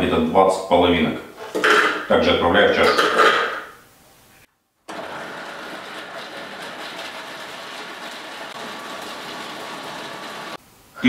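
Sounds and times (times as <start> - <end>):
food processor chopping nuts: 4.9 - 10.6.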